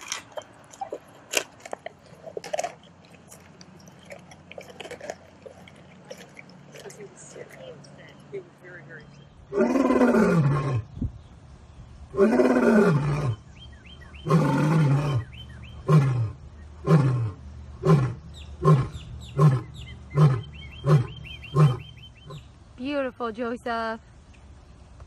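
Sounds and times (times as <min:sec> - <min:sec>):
lion roaring: 0:09.5 - 0:10.9, 0:12.1 - 0:13.4, 0:14.2 - 0:22.4
lion grunting calls: 0:14.2 - 0:22.5.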